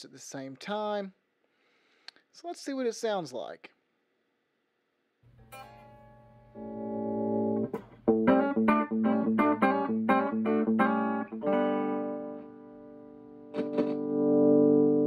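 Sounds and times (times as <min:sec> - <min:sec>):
scratchy amp crackles: 0:05.3 - 0:15.0
electric guitar: 0:05.4 - 0:15.0.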